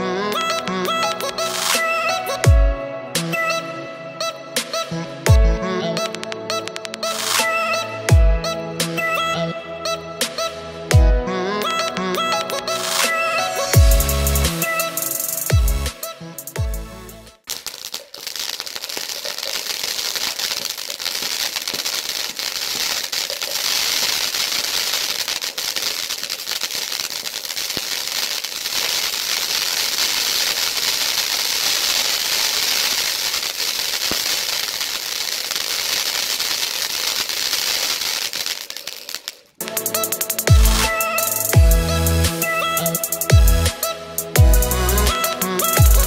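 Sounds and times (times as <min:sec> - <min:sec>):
firework fountain hissing and crackling: 0:00.4 - 0:02.3, 0:06.1 - 0:07.6, 0:12.7 - 0:16.6, 0:17.4 - 0:46.0.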